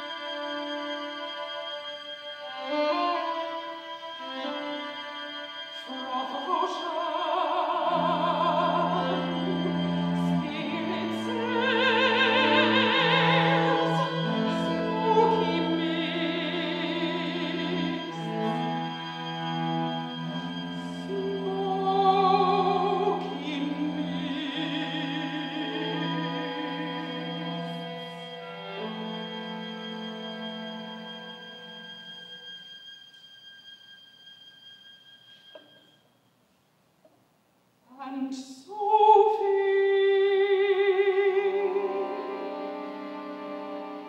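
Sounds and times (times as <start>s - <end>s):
string quartet chords: 0.0s - 32.6s, 39.3s - 44.0s
woman singing operatically: 5.8s - 18.5s, 20.3s - 27.9s, 37.9s - 42.4s.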